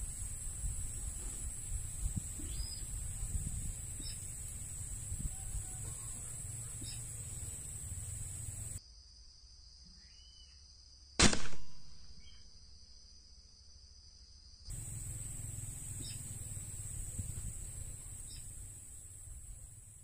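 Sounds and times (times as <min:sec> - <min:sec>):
high insect buzzing: 0:00.0 - 0:08.8, 0:14.7 - 0:20.0
air rifle shot: 0:11.2 - 0:12.3.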